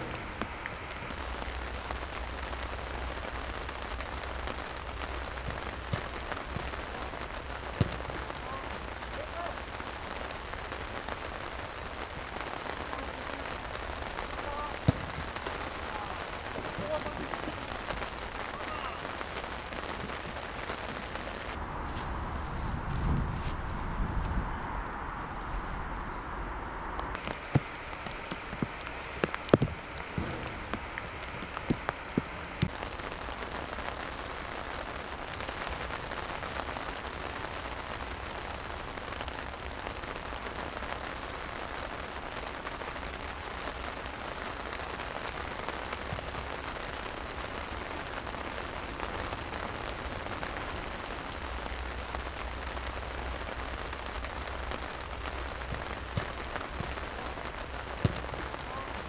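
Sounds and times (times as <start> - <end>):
heavy rain on grass: 0.0 - 24.7, 27.0 - 59.0
sharp knocks: 29.5 - 32.7.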